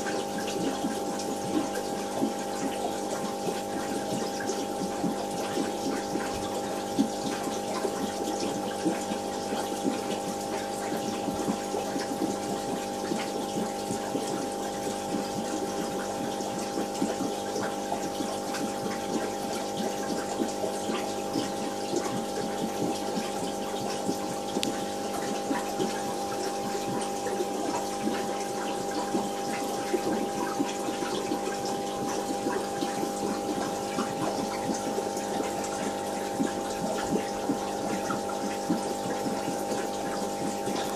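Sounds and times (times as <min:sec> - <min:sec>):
aquarium pump humming: 0:00.0 - 0:40.9
water noise: 0:00.0 - 0:40.9
small ticks: 0:24.5 - 0:24.8.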